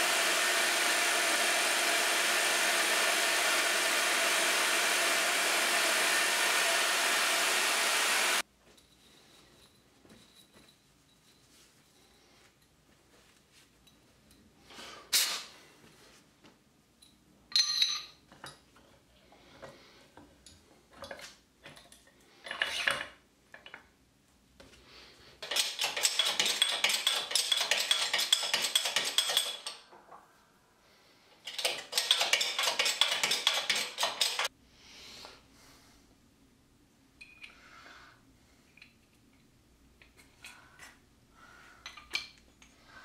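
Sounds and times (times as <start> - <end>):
metal clinks: 17.0 - 18.2.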